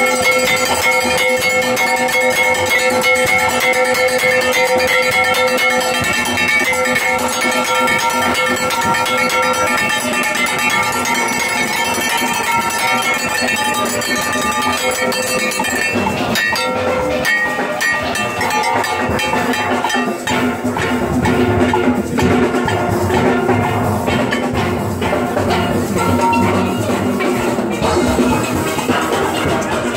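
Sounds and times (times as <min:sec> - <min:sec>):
metal percussion struck by hand: 0:00.0 - 0:29.9
sharp clanking strikes: 0:00.0 - 0:29.9
steel pan notes: 0:00.0 - 0:29.9.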